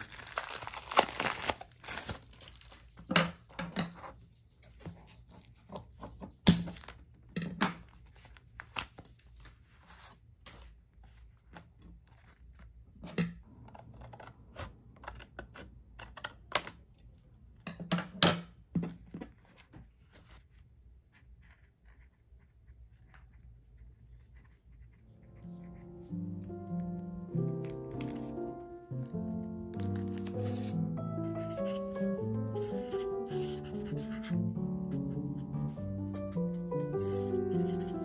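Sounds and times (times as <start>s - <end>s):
paper rustling and crinkling: 0.0s - 3.0s, 7.9s - 12.7s, 27.6s - 28.4s, 29.8s - 32.0s.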